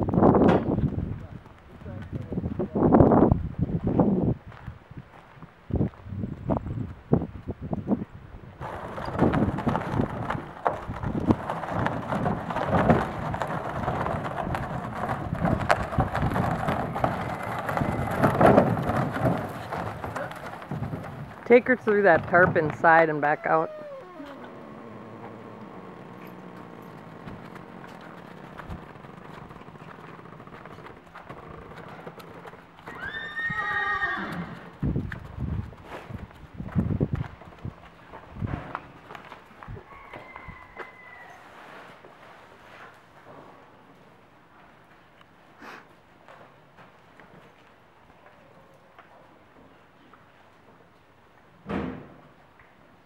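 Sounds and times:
horse hooves clopping on dirt: 0:00.0 - 0:42.2, 0:45.9 - 0:51.5
barrel rollers rumbling on gravel: 0:08.4 - 0:39.8
grit crunching under rollers: 0:08.6 - 0:33.2
horse whinnying: 0:23.0 - 0:30.8, 0:32.8 - 0:34.7
thump: 0:51.7 - 0:52.2.

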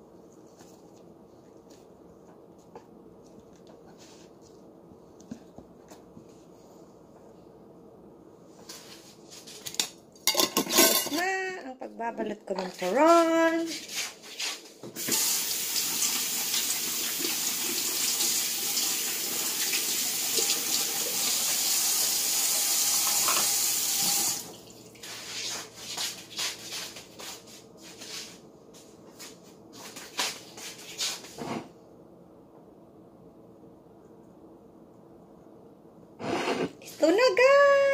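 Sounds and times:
water running from tap: 0:15.0 - 0:24.8.

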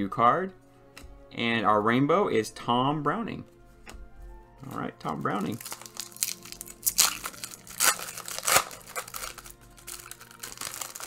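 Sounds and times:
plastic wrapper tearing and crumpling: 0:05.1 - 0:11.0.

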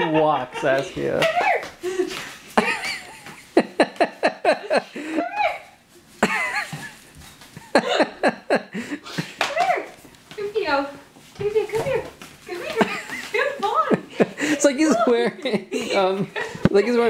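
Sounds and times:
people laughing: 0:00.0 - 0:05.5, 0:06.2 - 0:07.0, 0:07.6 - 0:09.4, 0:12.6 - 0:17.0.

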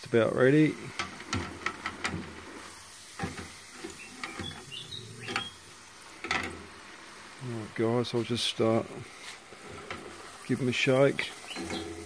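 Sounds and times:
chips sizzling in hot oil: 0:00.1 - 0:12.0
fry basket clinking against pot: 0:03.2 - 0:05.6, 0:09.9 - 0:12.0.

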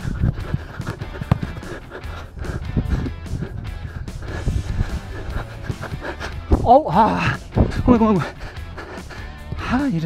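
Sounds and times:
background music: 0:00.0 - 0:10.0.

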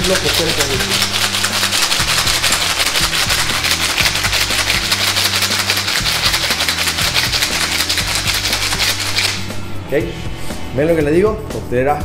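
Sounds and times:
ice rattling in metal cocktail shaker: 0:00.0 - 0:09.4
background music: 0:00.0 - 0:12.0.

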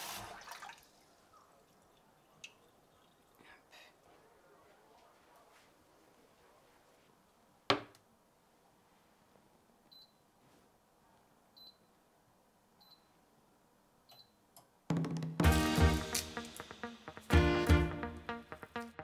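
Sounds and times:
music with a beat: 0:14.9 - 0:19.0.

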